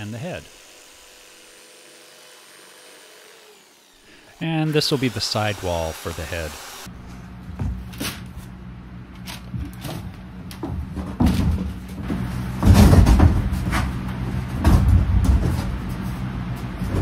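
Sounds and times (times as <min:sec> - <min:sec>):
wooden panel knocks and scrapes: 0:10.7 - 0:13.9.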